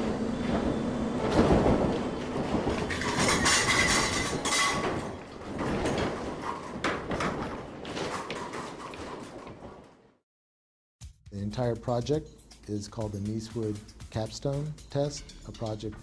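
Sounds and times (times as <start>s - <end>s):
timber frame clattering and rattling: 0.4s - 10.2s.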